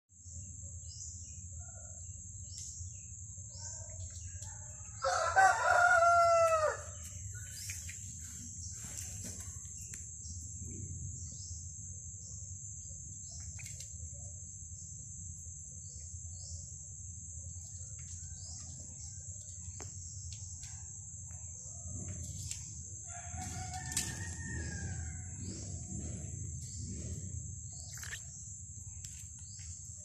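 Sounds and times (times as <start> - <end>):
low rumble: 21.7 - 30.0.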